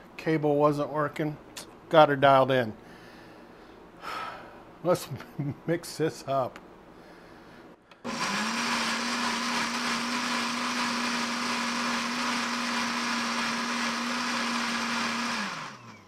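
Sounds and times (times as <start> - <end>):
electric blender running: 8.0 - 16.0.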